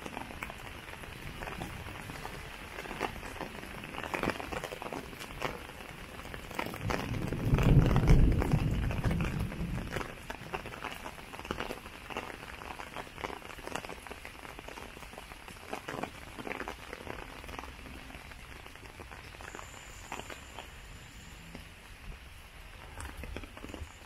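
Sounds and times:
rain pattering on surfaces: 0.0 - 24.0.

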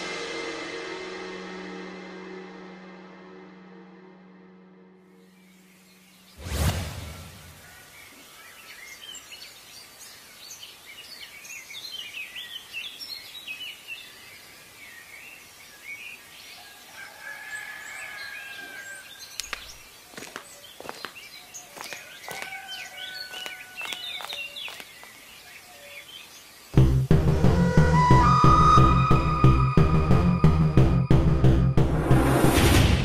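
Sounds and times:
birds chirping: 5.2 - 29.4.

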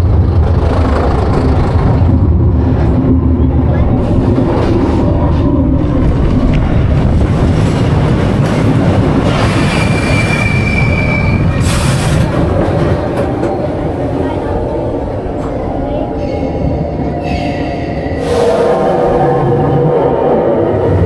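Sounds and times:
roller coaster rumbling: 0.0 - 21.0
high wheel squeal: 9.6 - 12.0.

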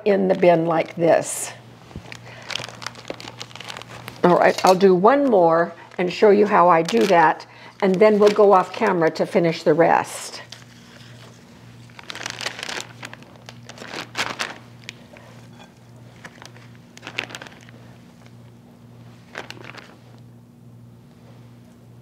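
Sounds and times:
plastic bag crinkling: 1.9 - 9.0, 10.4 - 20.2.

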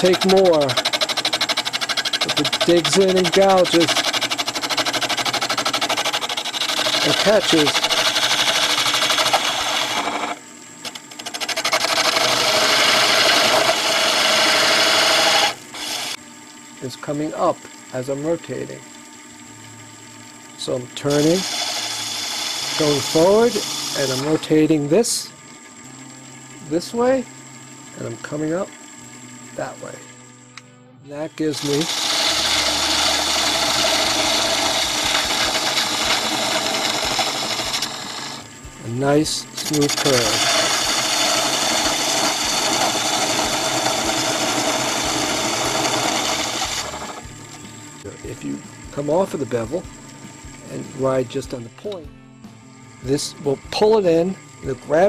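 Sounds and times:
lathe gouge scraping wood: 0.0 - 16.2, 21.0 - 24.8, 31.4 - 38.5, 39.6 - 47.2.

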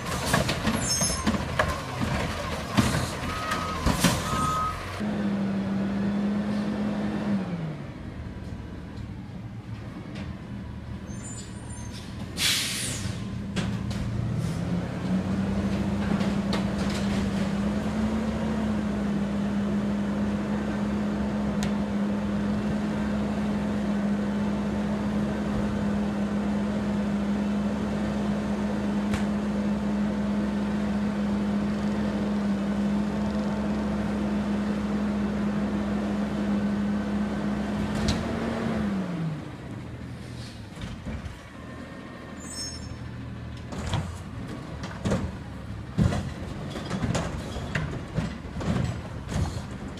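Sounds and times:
diesel engine revving: 0.0 - 8.2, 12.4 - 40.7.

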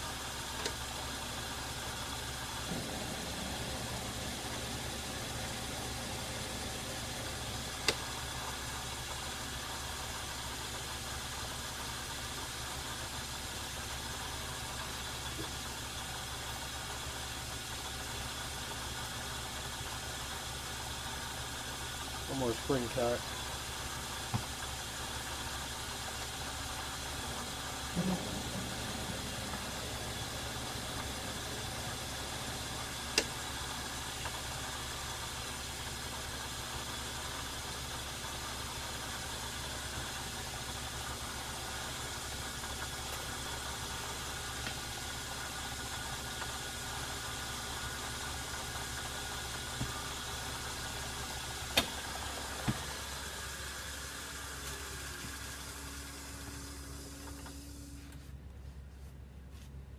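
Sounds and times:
metal lathe motor humming: 0.0 - 10.1, 21.4 - 38.9, 47.8 - 57.9.

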